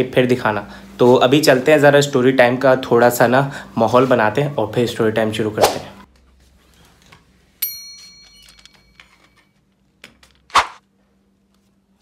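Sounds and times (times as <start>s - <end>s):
short loud swish: 5.6s - 6.0s
handling noises: 6.1s - 10.8s
ringing metallic ding: 7.6s - 9.2s.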